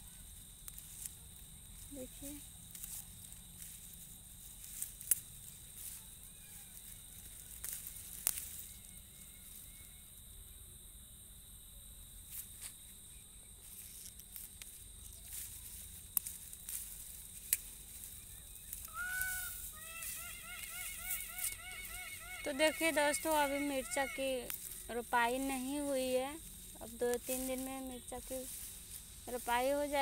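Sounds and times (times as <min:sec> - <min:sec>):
rustling of leaves and stems: 0:00.0 - 0:09.7, 0:13.6 - 0:30.0
stems snapping: 0:04.7 - 0:05.3, 0:07.4 - 0:08.6, 0:14.0 - 0:18.1, 0:24.5 - 0:24.8
bird calling: 0:18.2 - 0:24.9.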